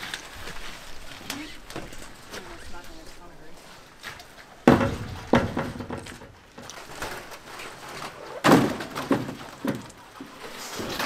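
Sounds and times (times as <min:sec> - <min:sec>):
heavy knocks and thuds: 0:04.6 - 0:06.4.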